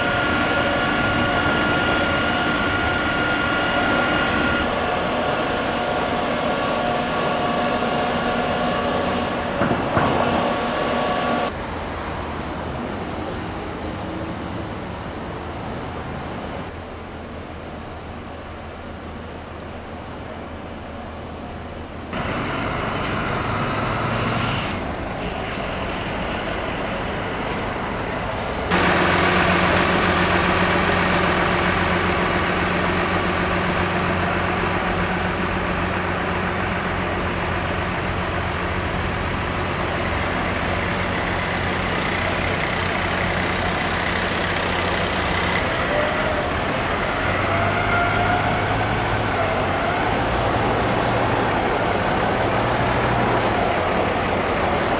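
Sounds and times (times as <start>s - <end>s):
high whine: 0.0s - 11.7s
bus engine running: 0.0s - 18.4s, 19.1s - 54.9s
street traffic noise: 0.0s - 54.9s.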